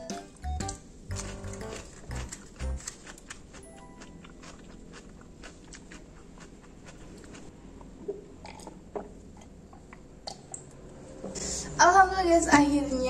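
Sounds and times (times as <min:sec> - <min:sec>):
wet chewing clicks: 0:00.6 - 0:08.7.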